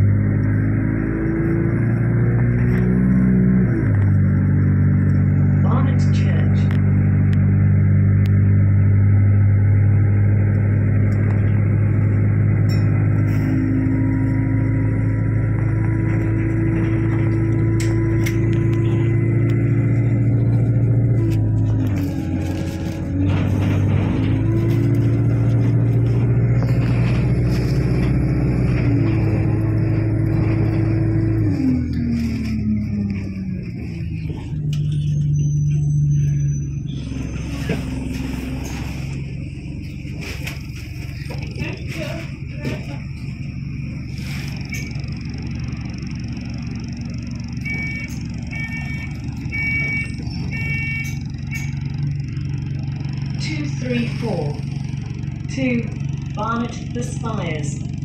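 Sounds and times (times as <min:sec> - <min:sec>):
bus engine droning: 0:00.0 - 0:58.0
electronic beep: 0:47.6 - 0:51.8.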